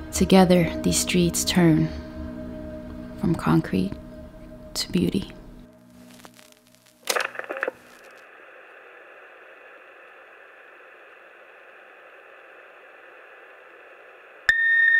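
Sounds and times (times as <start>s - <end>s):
steady static hiss: 2.7s - 14.5s.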